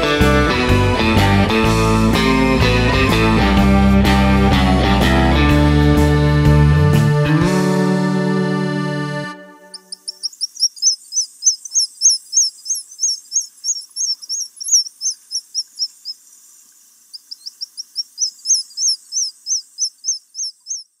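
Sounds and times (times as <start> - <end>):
bird chirping: 9.7 - 21.0.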